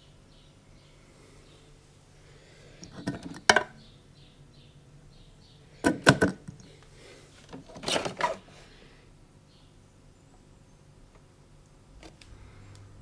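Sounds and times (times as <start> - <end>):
espresso machine parts clattering: 2.8 - 3.7, 7.6 - 8.4.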